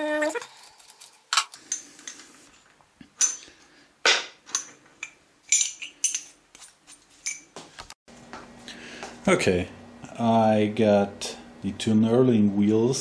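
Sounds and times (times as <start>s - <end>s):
metal clamp arms clinking: 4.5s - 7.5s.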